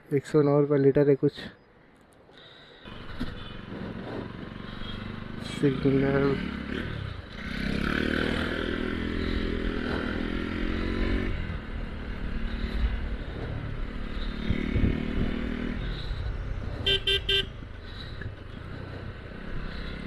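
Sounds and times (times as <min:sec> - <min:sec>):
wind and road rumble: 0:01.9 - 0:20.0
motorcycle engine accelerating: 0:02.9 - 0:20.0
vehicle horn beeping: 0:03.2 - 0:03.7, 0:16.8 - 0:17.6.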